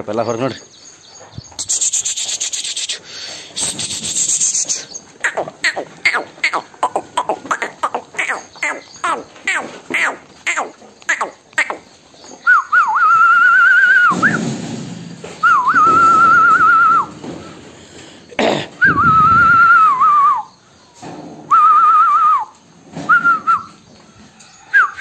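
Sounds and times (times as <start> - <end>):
lambs milling about: 0.3 - 12.4.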